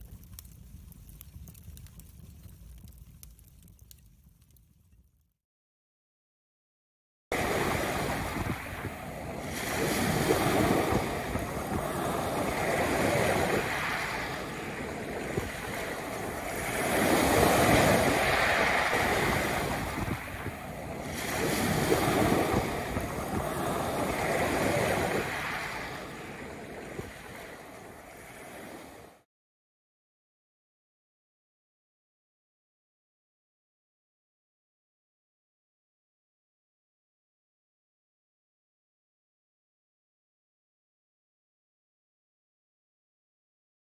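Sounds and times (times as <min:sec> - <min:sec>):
ocean waves breaking: 0:07.4 - 0:29.2.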